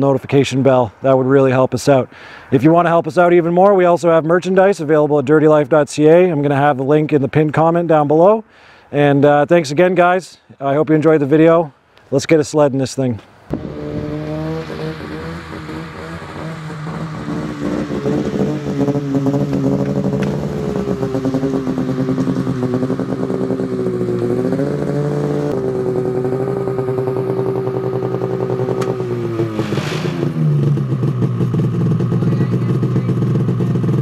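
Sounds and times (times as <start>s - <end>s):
snowmobile engine running: 13.5s - 34.0s.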